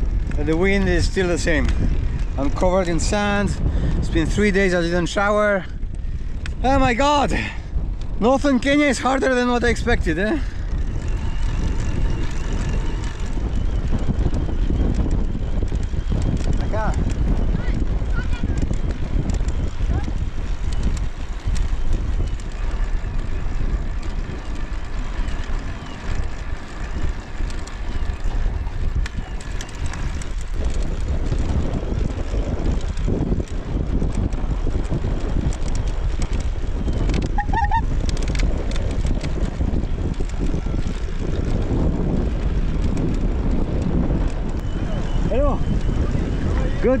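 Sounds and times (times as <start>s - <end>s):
wind buffeting microphone: 0.0s - 47.0s
short high-pitched sound: 37.4s - 37.9s.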